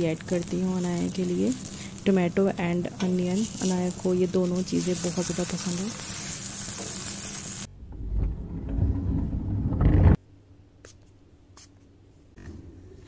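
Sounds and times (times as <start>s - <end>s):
batter sizzling on hot griddle: 0.0s - 7.7s
low rumble: 7.7s - 10.2s.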